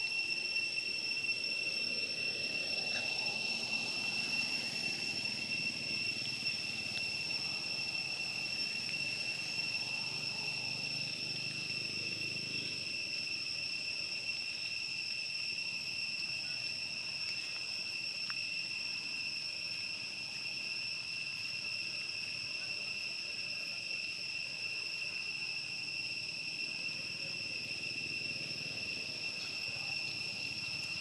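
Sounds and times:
high-pitched insect drone: 0:00.0 - 0:31.0.

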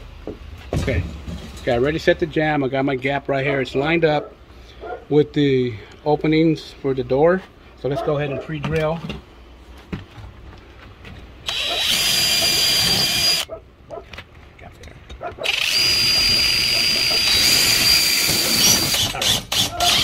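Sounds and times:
cordless drill drilling metal: 0:11.4 - 0:13.5, 0:15.4 - 0:20.0.

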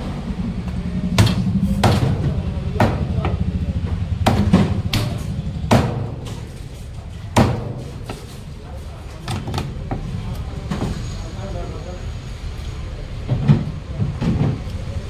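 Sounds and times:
low steady hum: 0:00.0 - 0:10.8.

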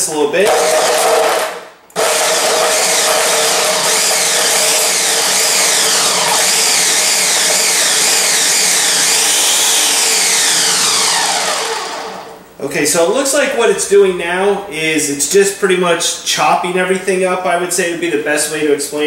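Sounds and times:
blender chopping vegetables: 0:00.4 - 0:12.4.

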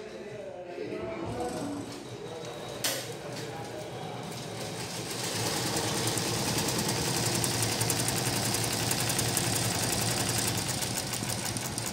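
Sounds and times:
motor hum: 0:05.2 - 0:11.9.

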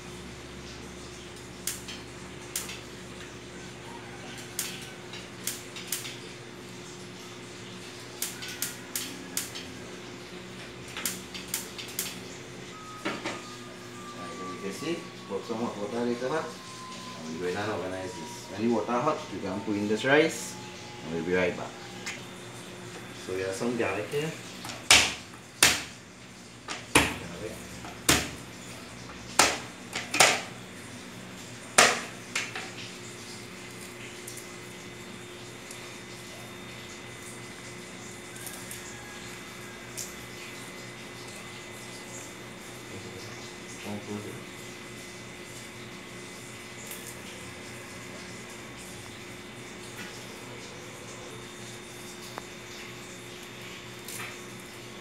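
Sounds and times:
gas stove igniter clicking: 0:01.6 - 0:01.9, 0:11.0 - 0:12.2.

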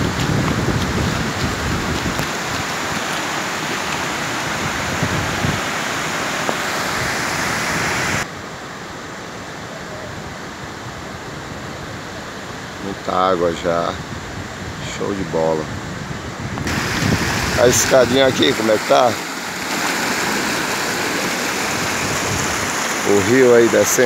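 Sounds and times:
wind rumble on microphone: 0:00.0 - 0:03.1, 0:04.2 - 0:05.8, 0:13.8 - 0:18.3, 0:21.7 - 0:22.8
water rushing over spillway: 0:00.0 - 0:08.3, 0:16.6 - 0:24.0.

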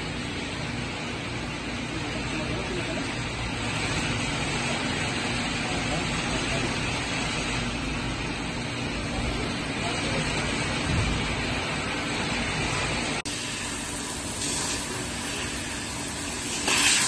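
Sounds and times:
laser cutting machine: 0:00.0 - 0:17.0
hissing assist gas bursts: 0:13.3 - 0:17.0.

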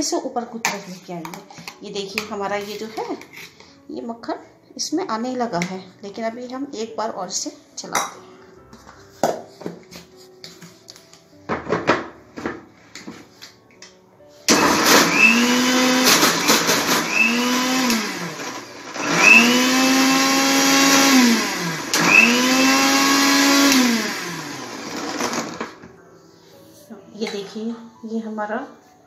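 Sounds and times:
mixer grinder motor whine: 0:14.5 - 0:25.8.

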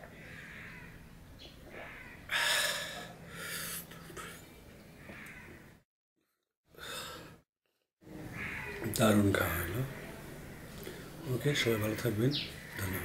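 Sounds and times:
man breathing heavily: 0:02.3 - 0:04.3.

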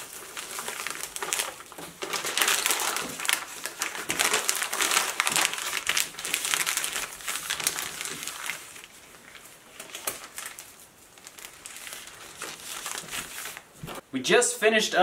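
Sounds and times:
wrapping paper crinkling: 0:00.0 - 0:14.0.

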